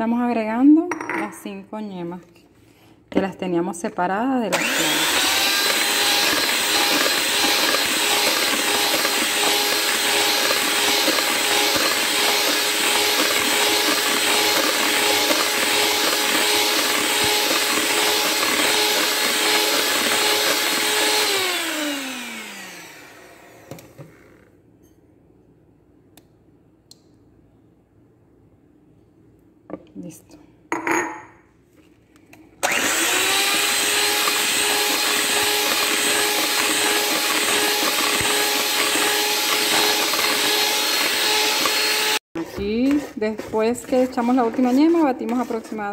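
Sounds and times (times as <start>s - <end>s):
electric hand mixer whirring: 4.5s - 24.1s, 32.6s - 45.9s.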